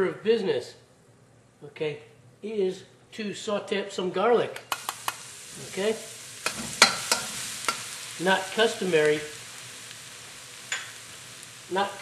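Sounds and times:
utensil clicking against pan: 0:04.6 - 0:05.2, 0:06.4 - 0:07.9
garlic sizzling in oil: 0:04.6 - 0:12.0.

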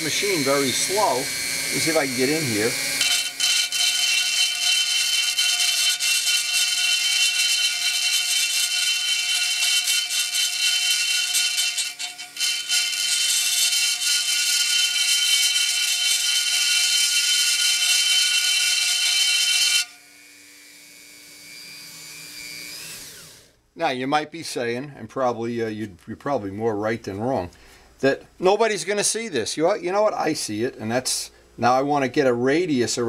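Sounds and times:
rotary tool grinding metal: 0:00.0 - 0:23.5.

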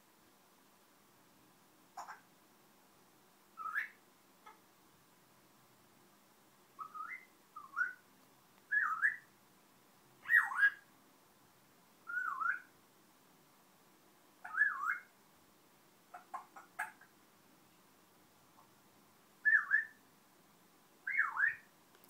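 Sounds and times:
parrot whistling: 0:03.6 - 0:04.0, 0:06.8 - 0:08.0, 0:08.7 - 0:09.3, 0:12.1 - 0:12.7, 0:14.4 - 0:15.1, 0:19.4 - 0:20.0, 0:21.1 - 0:21.7.

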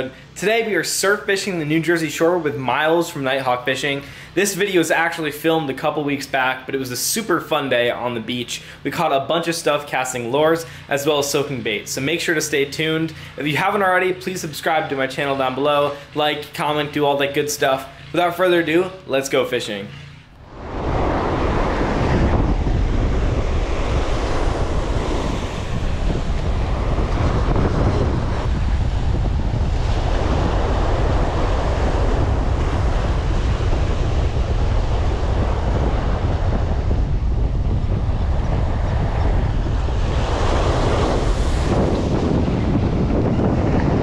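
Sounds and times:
surf breaking on beach: 0:00.0 - 0:44.0
wind noise on microphone: 0:20.2 - 0:44.0.

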